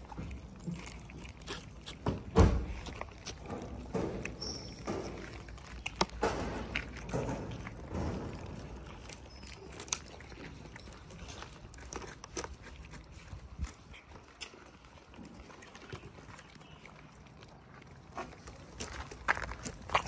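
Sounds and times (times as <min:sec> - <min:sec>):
cats chewing: 0:00.0 - 0:20.0.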